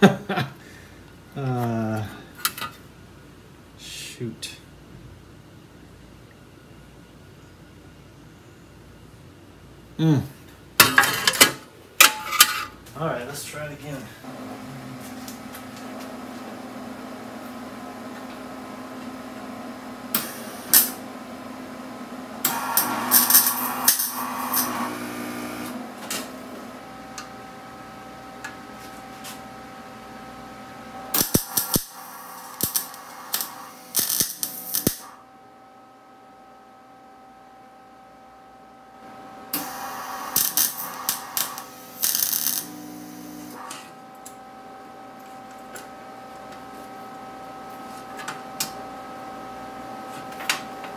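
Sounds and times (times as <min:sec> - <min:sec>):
steady hum: 0:00.0 - 0:50.9
welder arc crackling: 0:13.5 - 0:27.5, 0:30.9 - 0:35.2, 0:39.5 - 0:44.4.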